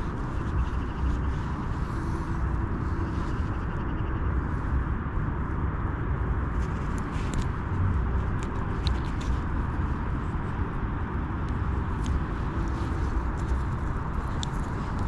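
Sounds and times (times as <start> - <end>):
low outdoor rumble: 0.0 - 15.0
faint small clicks: 13.4 - 15.0.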